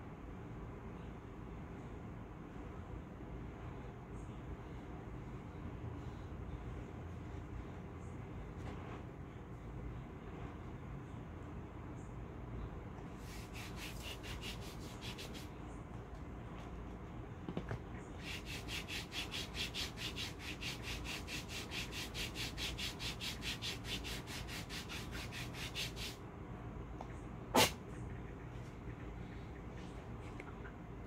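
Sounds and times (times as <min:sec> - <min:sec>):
hand rubbing wax strip: 0:13.2 - 0:15.6, 0:18.2 - 0:26.2.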